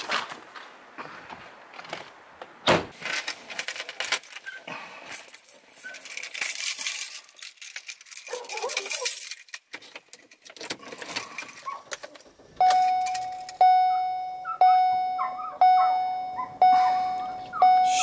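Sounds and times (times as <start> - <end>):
clicks and rustling: 1.7 - 13.6
car warning chime: 12.6 - 18.0.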